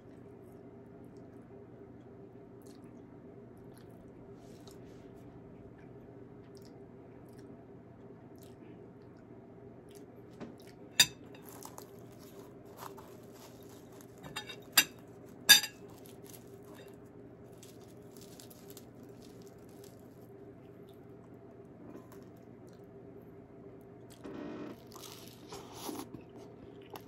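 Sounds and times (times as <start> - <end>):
steady low hum: 0.0 - 27.0
tableware clinking: 11.0 - 11.5, 14.2 - 15.8.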